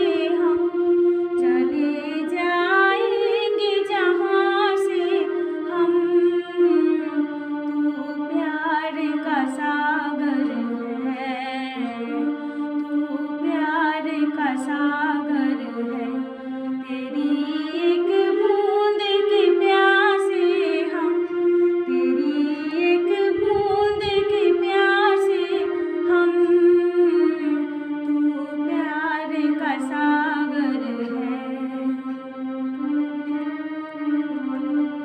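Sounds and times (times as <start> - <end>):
woman singing solo: 21.8 - 31.9.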